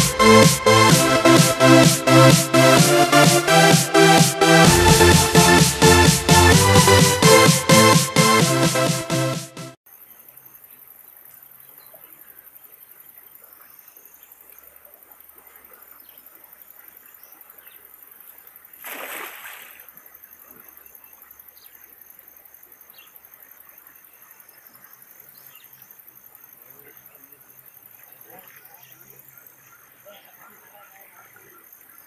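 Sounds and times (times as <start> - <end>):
insects buzzing: 9.9 - 32.0.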